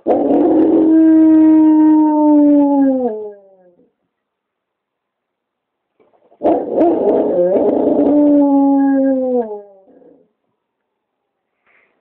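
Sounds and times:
dog howling: 0.0s - 3.9s, 6.4s - 10.2s.

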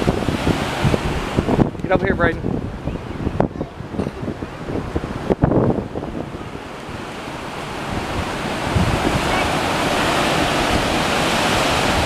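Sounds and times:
wind buffeting microphone: 0.0s - 12.0s
water rushing through dam gates: 3.4s - 12.0s.

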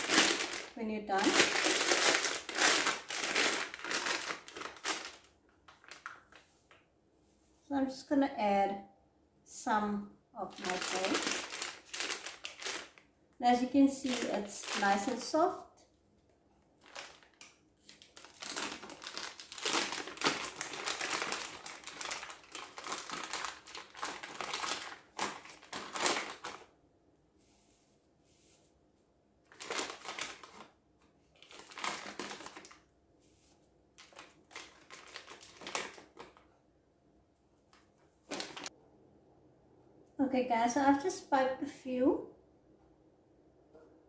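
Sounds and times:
plastic piping bag crinkling: 0.0s - 6.6s, 10.4s - 15.6s, 16.8s - 26.7s, 29.5s - 32.9s, 33.9s - 36.5s, 37.8s - 38.7s.

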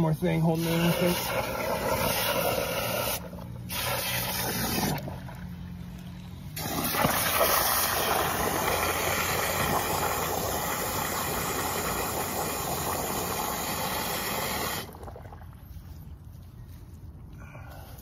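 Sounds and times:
hose nozzle spraying water: 0.5s - 5.1s, 6.6s - 15.0s.

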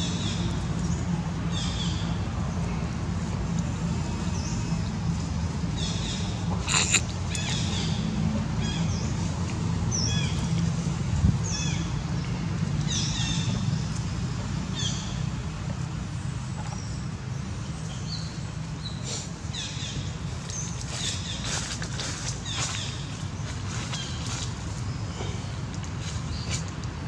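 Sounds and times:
monkey squeaking calls: 6.7s - 7.7s.

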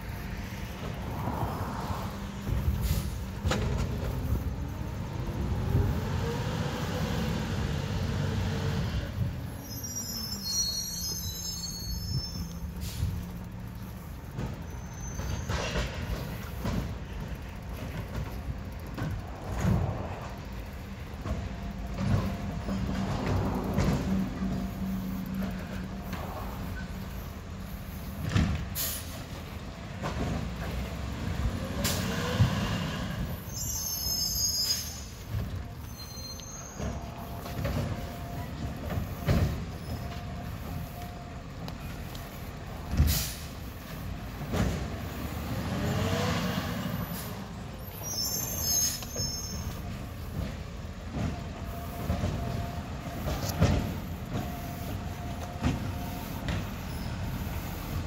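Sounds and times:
short air hisses: 2.8s - 3.3s, 9.8s - 13.2s, 27.1s - 29.3s, 43.0s - 43.9s
diesel truck engine revving: 44.5s - 47.5s.

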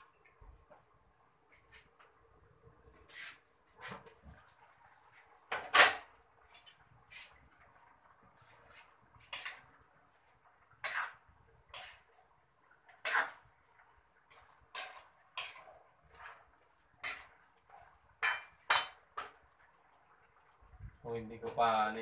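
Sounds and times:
metal spatula scraping a wok: 5.7s - 7.5s, 8.3s - 19.5s.

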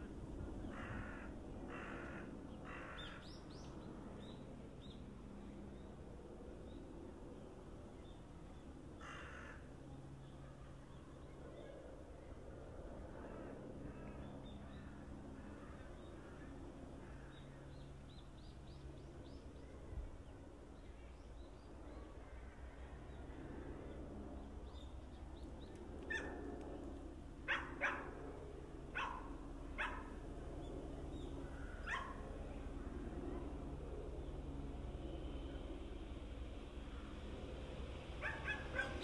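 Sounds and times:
dog barking: 27.5s - 28.1s, 29.0s - 30.1s, 31.8s - 32.2s, 38.2s - 39.0s.

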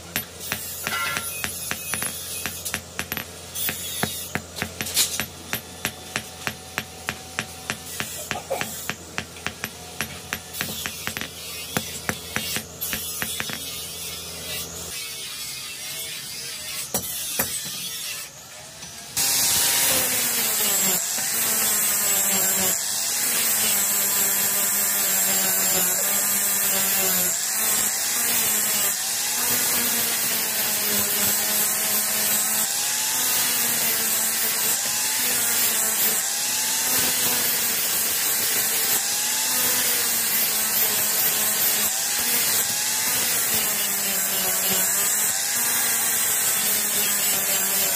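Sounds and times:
hammer striking steel on anvil: 0.0s - 13.8s
angle grinder grinding steel: 0.0s - 47.9s.

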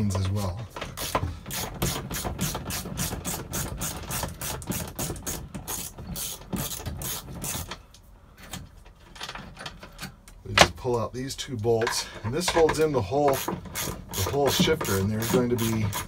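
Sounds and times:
ratchet wrench clicking: 13.3s - 16.0s.

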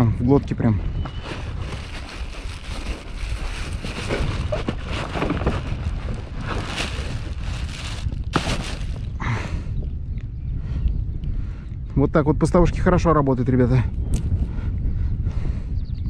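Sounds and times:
wind buffeting microphone: 0.0s - 16.0s
rustles and knocks of gear: 1.0s - 9.2s.

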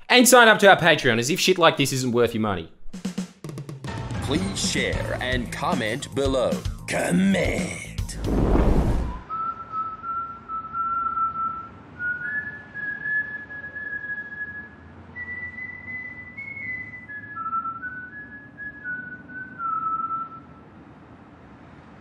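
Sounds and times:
person whistling a slow tune: 9.2s - 20.6s.

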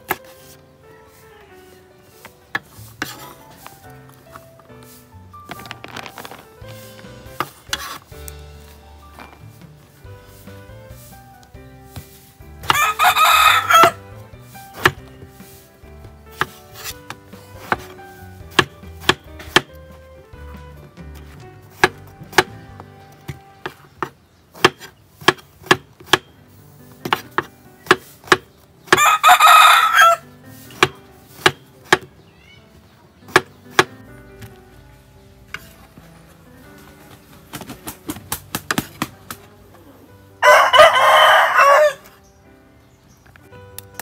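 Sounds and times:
rooster crowing: 12.7s - 14.0s, 29.0s - 30.2s, 40.4s - 42.1s
knife chopping on wooden board: 16.3s - 19.8s, 21.2s - 22.6s, 23.3s - 26.3s, 27.0s - 29.1s, 30.8s - 32.1s, 33.3s - 33.9s.

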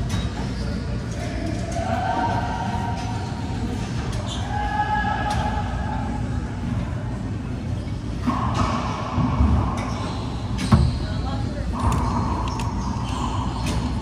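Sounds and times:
low court rumble: 7.8s - 14.0s.

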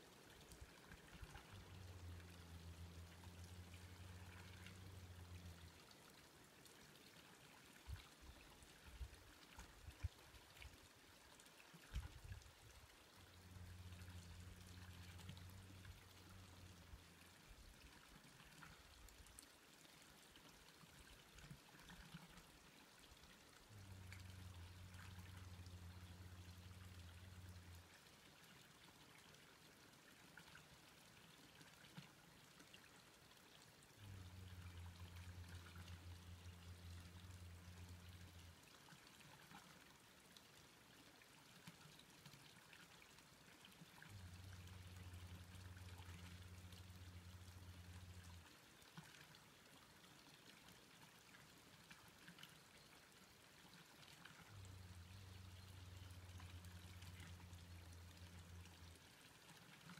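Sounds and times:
low hum: 0.4s - 6.2s, 13.1s - 18.8s, 23.6s - 28.0s, 34.0s - 38.7s, 44.0s - 48.4s, 54.3s - 59.0s.

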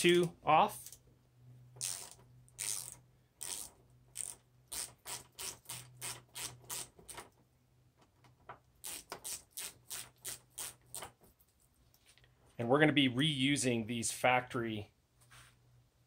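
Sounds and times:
hand ratchet clicking: 1.8s - 7.2s.

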